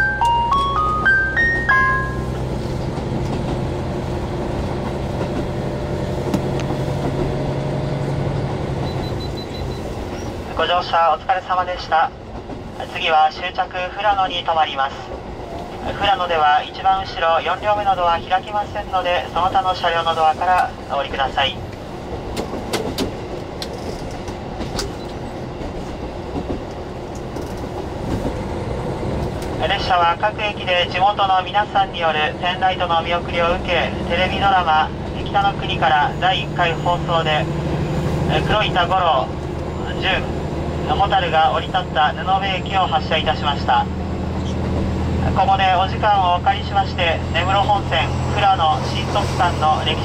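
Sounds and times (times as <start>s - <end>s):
railcar engine and wheels rumbling: 0.0s - 50.0s
wheel-on-rail rumble: 1.6s - 10.6s
diesel engine hum: 28.4s - 50.0s.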